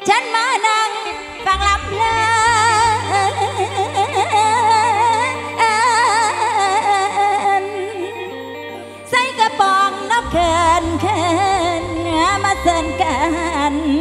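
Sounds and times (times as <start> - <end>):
woman singing into microphone: 0.0 - 14.0
live band music: 1.0 - 14.0
deep held bass: 1.1 - 7.9, 10.2 - 14.0.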